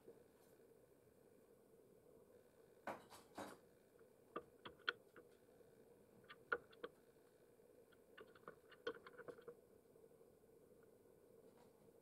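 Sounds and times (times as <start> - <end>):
bird bill pecking in a bowl: 4.4 - 5.3, 6.2 - 7.0, 7.9 - 9.6.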